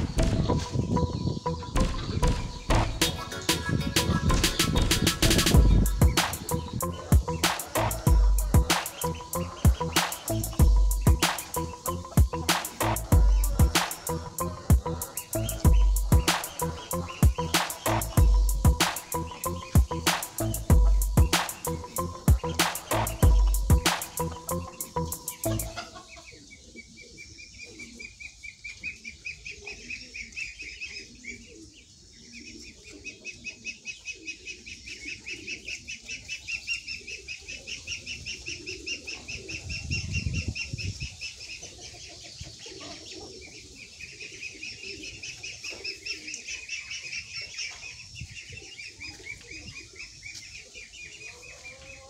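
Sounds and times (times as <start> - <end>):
chickens clucking: 0.0 - 52.0
fast high-pitched trill: 2.8 - 25.8.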